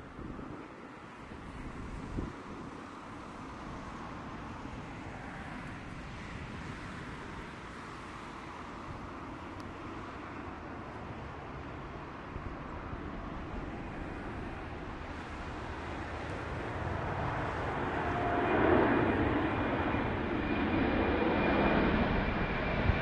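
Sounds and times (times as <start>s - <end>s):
jet engines at takeoff: 0.0s - 23.0s.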